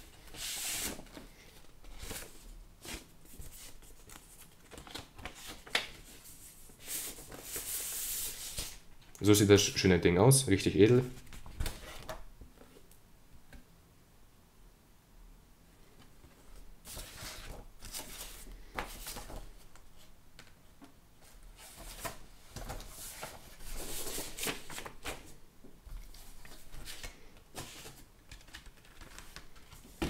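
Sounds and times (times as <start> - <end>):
paper and cardboard rustling: 0.0 - 8.8, 16.4 - 20.1, 21.2 - 30.0.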